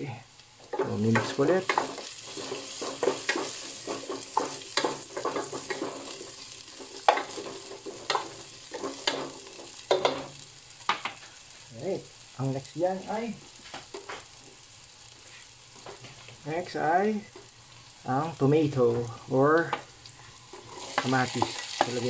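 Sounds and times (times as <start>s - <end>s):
food sizzling in hot oil: 0.0s - 22.0s
spatula scraping a pan: 0.8s - 10.4s, 20.2s - 22.0s.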